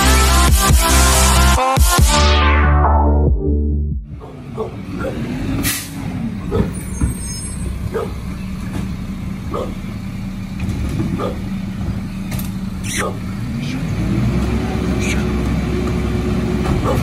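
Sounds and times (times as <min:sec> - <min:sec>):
diesel truck engine humming: 0:00.0 - 0:01.7, 0:02.9 - 0:17.0
dog barking: 0:04.2 - 0:05.3, 0:06.5 - 0:06.7, 0:07.9 - 0:08.2, 0:09.5 - 0:09.8, 0:11.1 - 0:11.5, 0:12.9 - 0:13.3, 0:16.7 - 0:17.0
air brakes hissing: 0:04.6 - 0:08.9.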